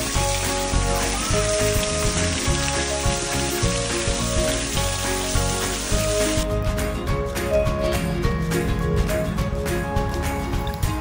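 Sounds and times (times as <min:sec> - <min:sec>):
small waterfall splashing on rock: 0:00.0 - 0:06.4
background music with held tones: 0:00.0 - 0:11.0.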